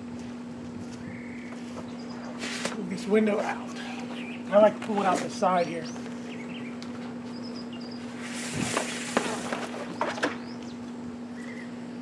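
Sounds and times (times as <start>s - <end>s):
steady low hum: 0.0s - 12.0s
fabric and plastic sliding: 8.2s - 9.9s
faint bird chirps: 10.4s - 12.0s.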